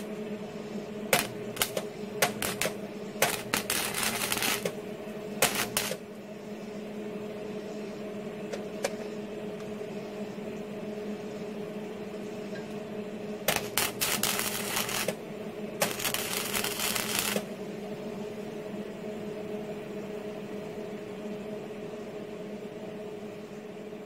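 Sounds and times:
welding arc crackling: 0.0 - 0.2, 1.1 - 6.1, 13.5 - 15.2, 15.8 - 17.5
steady low hum: 0.0 - 24.0.

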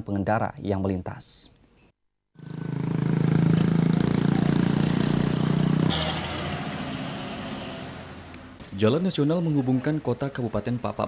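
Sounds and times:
vehicle engine running: 2.4 - 8.6.

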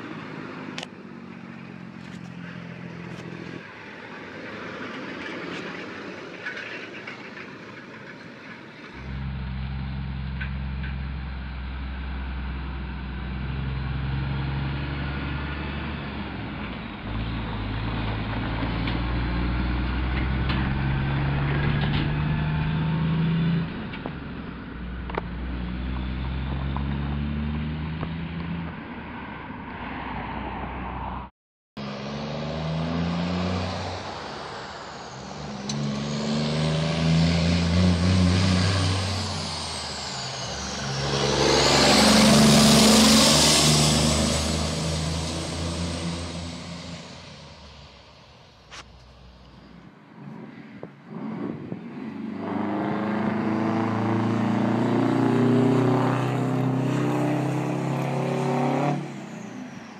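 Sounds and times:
truck diesel engines accelerating: 0.0 - 59.9
high whine: 34.0 - 49.8.

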